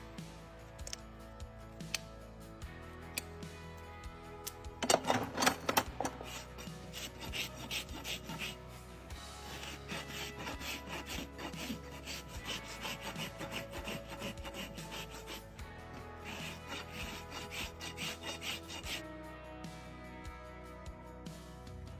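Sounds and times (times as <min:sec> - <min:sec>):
background music: 0:00.0 - 0:21.9
rasp filing horse hoof: 0:04.8 - 0:19.0.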